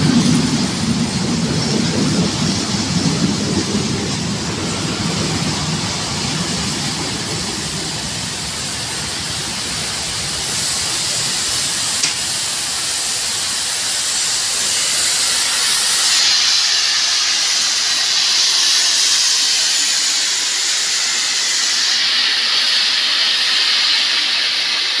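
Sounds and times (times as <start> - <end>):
steam locomotive venting steam: 0.0 - 25.0
train wheels rumbling: 0.0 - 25.0
sharp click: 12.0 - 12.3.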